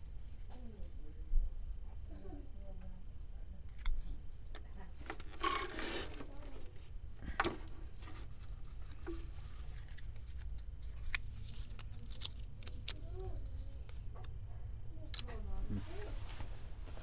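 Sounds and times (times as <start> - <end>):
rubbing and rustling: 5.0 - 6.9, 7.5 - 14.0, 15.6 - 17.0.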